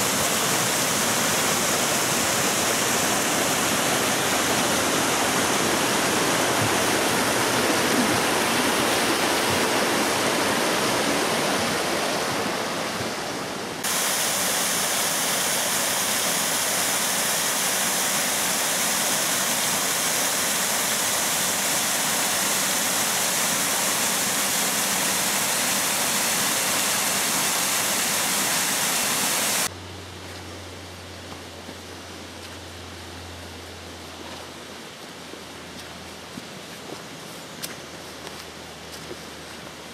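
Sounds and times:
stream and waterfall rushing: 0.0 - 29.9
low steady hum: 29.6 - 39.9.

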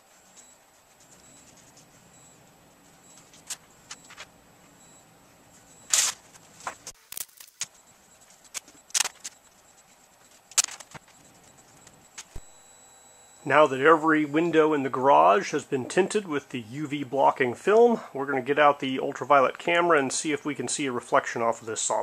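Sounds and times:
window film clicks and rustles: 5.9 - 7.7, 8.5 - 9.4, 10.5 - 11.1.

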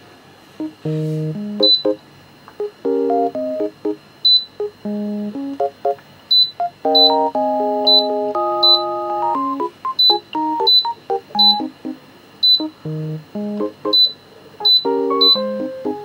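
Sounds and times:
piano-like background music: 0.6 - 2.0, 2.6 - 4.0, 4.6 - 16.0
short high electronic beeps: 1.6 - 2.0, 6.3 - 11.7, 12.4 - 12.8, 13.9 - 15.4.

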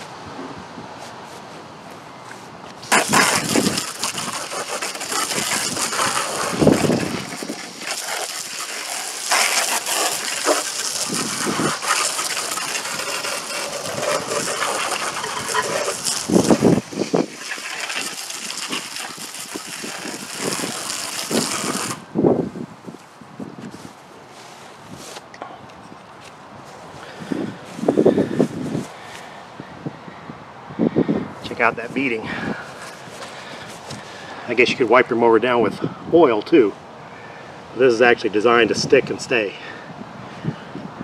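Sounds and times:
hose spray drumming on mower: 2.7 - 22.2, 27.0 - 29.3, 31.4 - 34.8.

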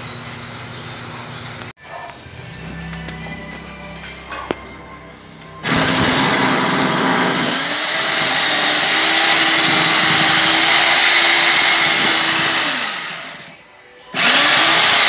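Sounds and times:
electric drill boring into concrete: 5.6 - 13.5, 14.1 - 15.0.

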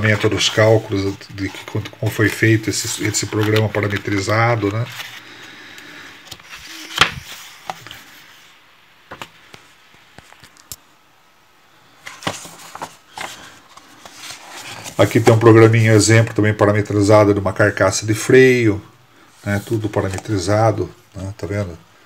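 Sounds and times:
paper rustling of pages: 0.0 - 8.5, 9.1 - 10.8, 12.0 - 16.3, 19.5 - 21.7.

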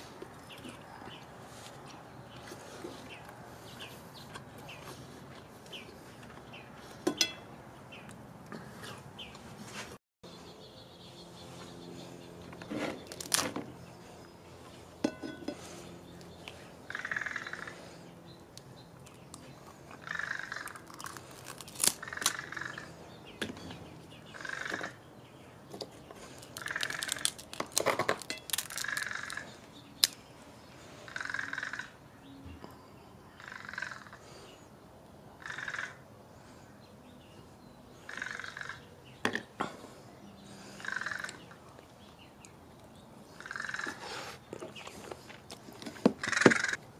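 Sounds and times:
bird calling harshly: 20.0 - 20.9, 38.0 - 38.9, 46.2 - 46.8
crab shell cracking: 20.6 - 22.4, 26.4 - 29.4.

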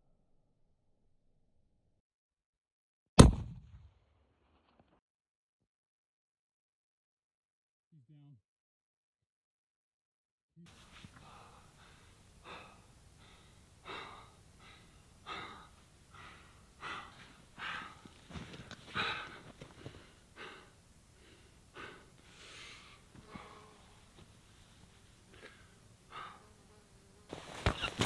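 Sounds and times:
man breathing hard: 10.7 - 26.6.

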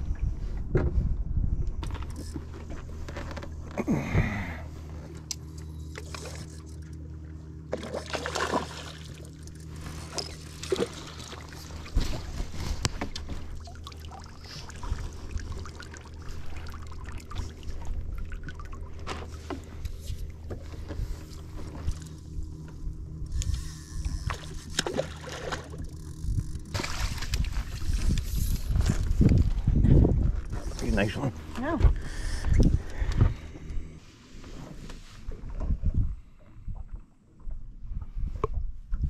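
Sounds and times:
water sloshing at hull: 0.0 - 39.0
knocks and clatter on boat: 0.5 - 4.2, 7.7 - 13.7, 17.3 - 22.9, 24.0 - 33.8
boat motor idling: 1.8 - 34.0.

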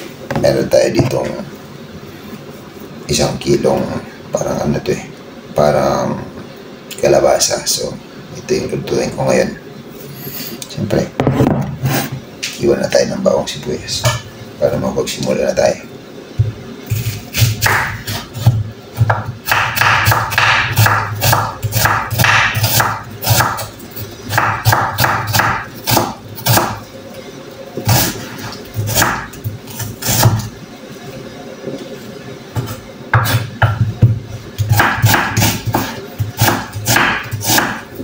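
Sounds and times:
knife chopping on cutting board: 17.0 - 23.7, 24.3 - 26.8, 28.8 - 30.4, 32.6 - 37.9.

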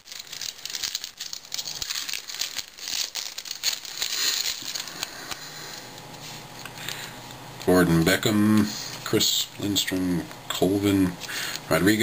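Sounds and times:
foil wrapper crinkling and tearing: 0.0 - 5.6.

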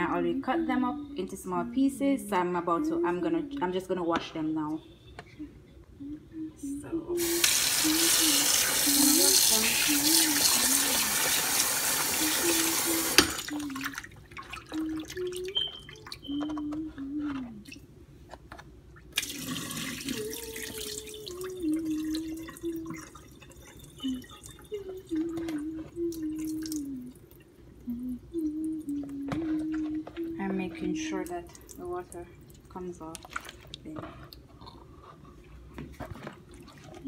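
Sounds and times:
woman humming: 4.8 - 11.2, 14.7 - 17.7, 19.7 - 23.2, 23.9 - 31.4
tap water running: 7.2 - 16.5, 19.1 - 26.9
clicks and splashes of handling: 32.6 - 33.9.

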